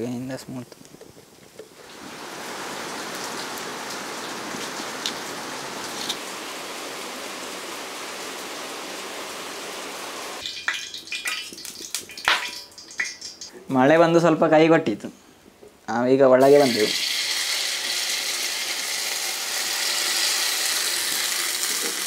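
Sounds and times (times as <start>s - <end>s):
rain dripping off roof: 1.8s - 13.6s, 16.7s - 22.0s.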